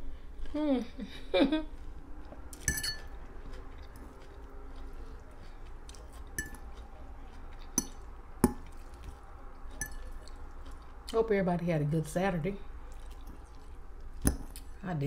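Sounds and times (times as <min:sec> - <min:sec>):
faint chewing: 0:01.6 - 0:11.3, 0:12.6 - 0:14.8
metal fork clinking on plate: 0:02.6 - 0:03.2, 0:06.4 - 0:06.6, 0:09.8 - 0:10.1.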